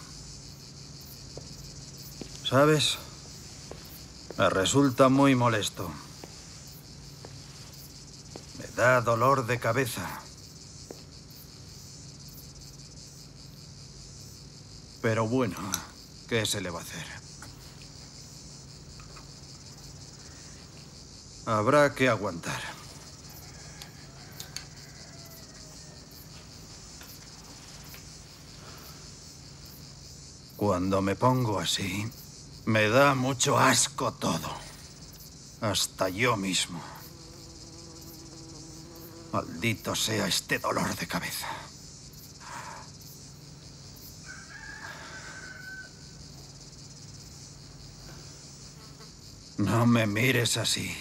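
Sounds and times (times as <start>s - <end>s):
crickets chirping: 0.0s - 51.0s
rooster crowing: 23.1s - 26.6s, 44.2s - 46.3s.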